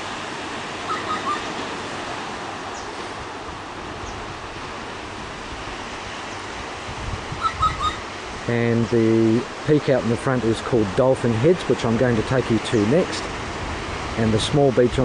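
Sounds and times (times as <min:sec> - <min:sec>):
distant sea: 0:00.0 - 0:15.0
wind: 0:00.0 - 0:15.0.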